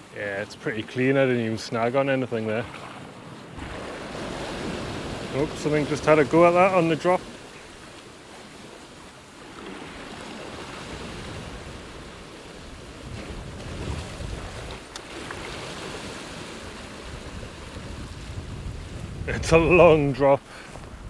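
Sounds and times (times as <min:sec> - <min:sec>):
sea waves washing over rocks: 0:00.0 - 0:20.8
wind gusting on microphone: 0:09.8 - 0:21.0.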